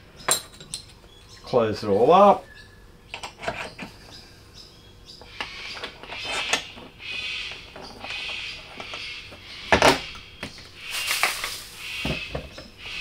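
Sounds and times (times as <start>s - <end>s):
plastic barrel handling sounds: 10.9s - 12.7s.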